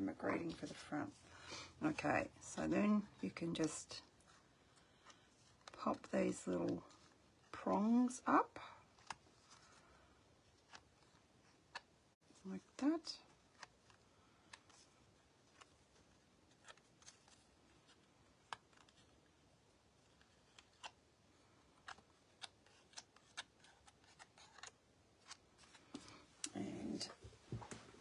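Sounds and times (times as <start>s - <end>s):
cardstock rustling: 21.8s - 26.2s.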